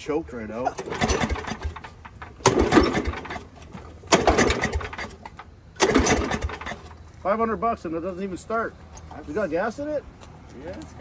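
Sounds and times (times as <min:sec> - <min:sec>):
recoil starter pulls cranking engine: 0:00.7 - 0:07.0.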